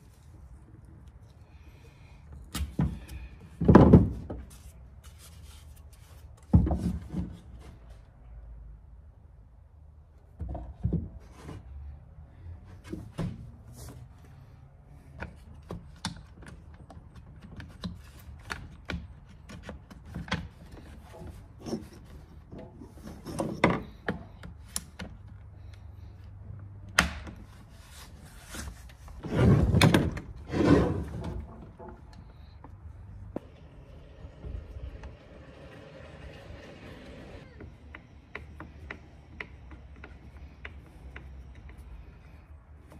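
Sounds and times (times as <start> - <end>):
clunks and knocks of tools: 15.2 - 25.7.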